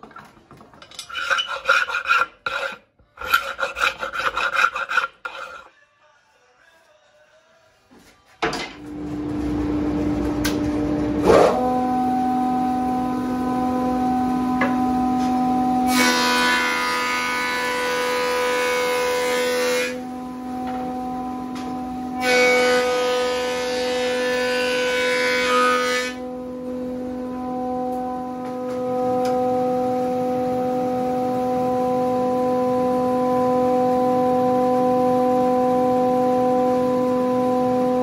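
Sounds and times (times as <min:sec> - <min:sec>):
planer cutting board: 0:01.0 - 0:05.7.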